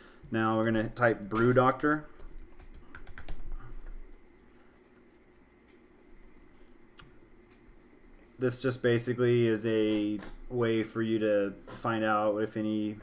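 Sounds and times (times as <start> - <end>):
keyboard typing clicks: 2.2 - 3.5.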